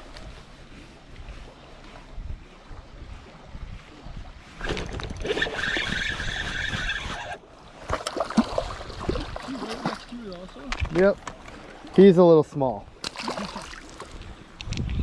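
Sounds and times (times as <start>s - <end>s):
fishing reel whirring: 4.6s - 7.4s
water splashing: 4.6s - 14.6s.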